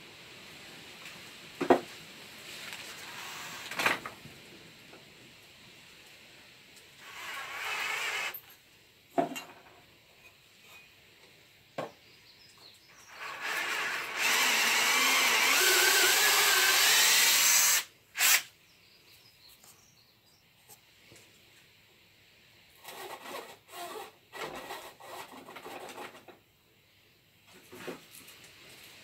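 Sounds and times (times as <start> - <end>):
cordless drill boring into wood: 3.0 - 3.9, 7.0 - 8.4, 13.1 - 18.5.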